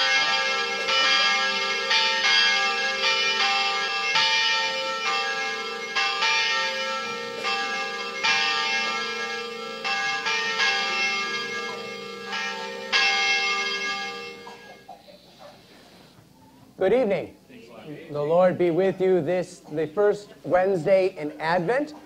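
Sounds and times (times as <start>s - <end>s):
church bells ringing: 0.0s - 15.6s.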